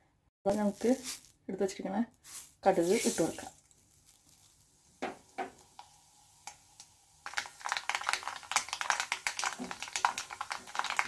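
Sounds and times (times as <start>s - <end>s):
mustard seeds popping in oil: 2.7s - 11.0s.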